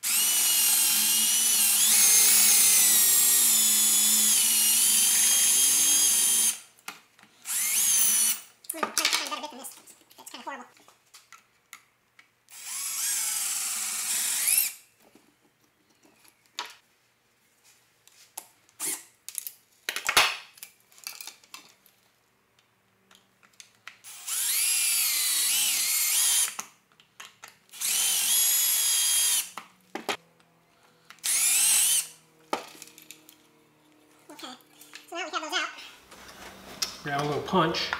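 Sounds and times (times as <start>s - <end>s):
cordless drill whining: 0.0s - 6.6s, 7.4s - 8.5s, 12.5s - 14.9s, 24.0s - 26.6s, 27.7s - 29.6s, 31.1s - 32.2s.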